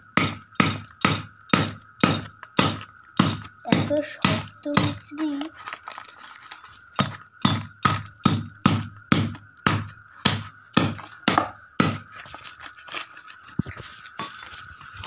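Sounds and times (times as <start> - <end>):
chopping blade striking wrapped object: 0.2 - 5.4, 6.9 - 12.2.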